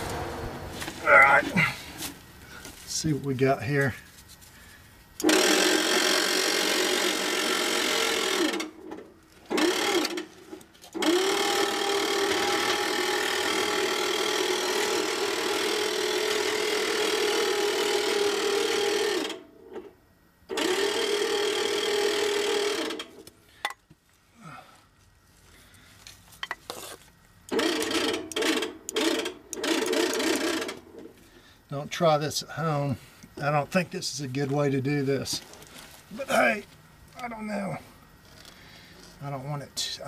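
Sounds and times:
electric winch motor whine: 5.2s - 19.8s, 20.5s - 23.2s, 27.5s - 31.1s.

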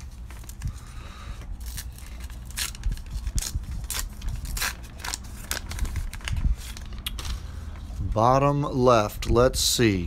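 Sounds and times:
card pack crinkling and rustling: 0.0s - 8.0s.

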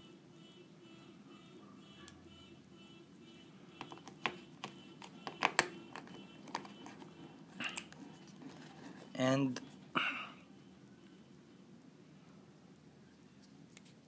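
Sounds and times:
plastic tray clicks and taps: 3.8s - 6.8s.

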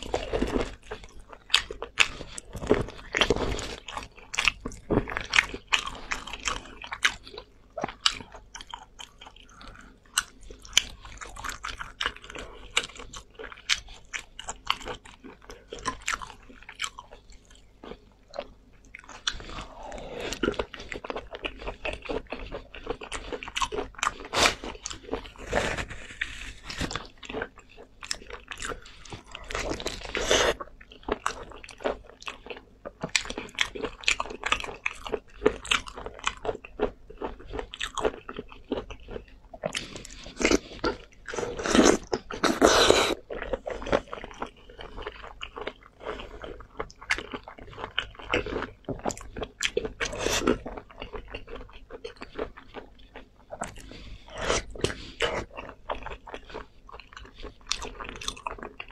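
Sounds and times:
person chewing with mouth clicks: 0.0s - 58.9s.

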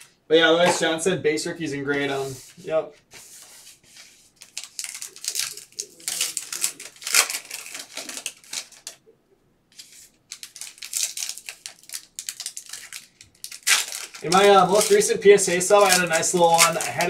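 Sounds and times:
foil wrappers crinkling: 3.9s - 9.0s, 9.7s - 17.0s.

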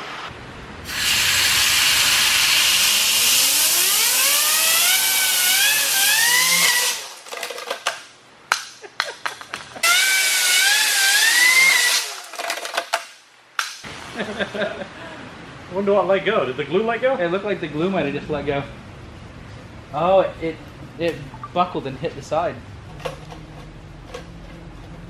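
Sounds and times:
compressed air hissing: 0.8s - 3.7s
spinning wheel whine rising: 2.3s - 7.0s.

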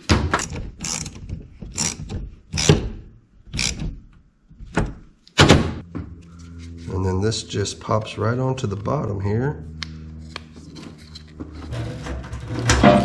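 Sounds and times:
hose clamp being tightened: 3.5s - 4.0s.

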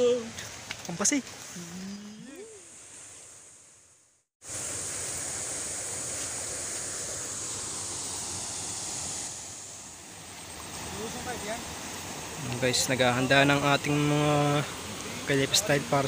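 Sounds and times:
hiss: 4.4s - 10.2s
river water rushing: 4.4s - 16.0s.

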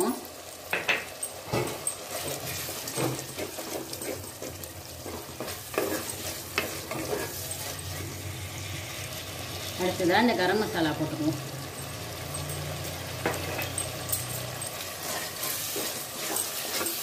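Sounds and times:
food sizzling in oil: 0.0s - 17.0s
wooden spatula scraping a pot: 1.5s - 8.3s, 13.2s - 17.0s.

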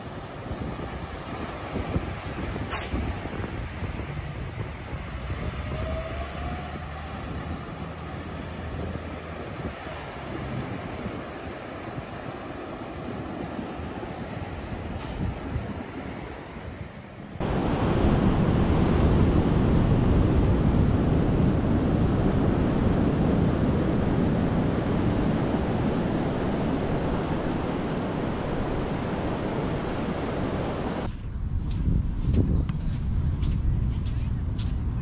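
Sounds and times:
wind on microphone: 0.0s - 35.0s
ocean surf: 8.4s - 31.1s.

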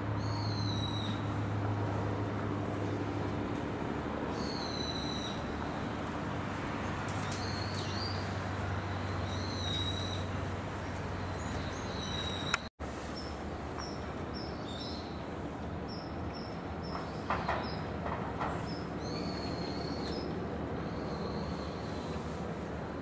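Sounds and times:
birds chirping: 7.2s - 15.2s.

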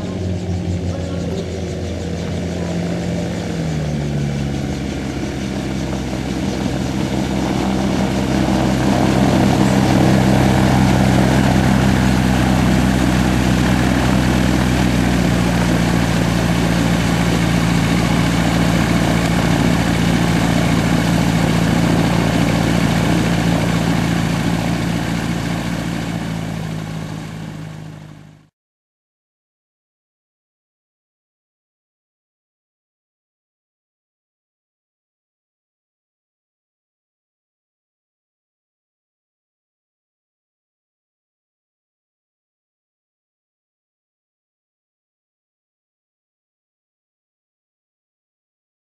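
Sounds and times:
aircraft engine and propeller: 0.0s - 28.5s.

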